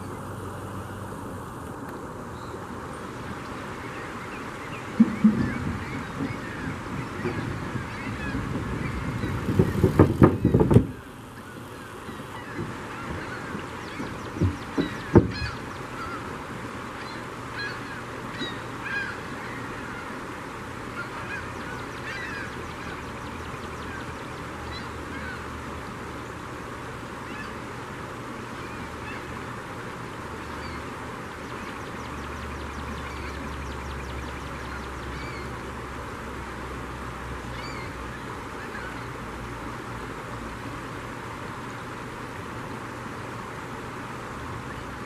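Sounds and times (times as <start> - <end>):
river water rushing over shallows: 0.0 - 45.0
gulls squawking: 3.5 - 25.7, 27.2 - 27.8, 28.4 - 35.7, 37.5 - 39.2.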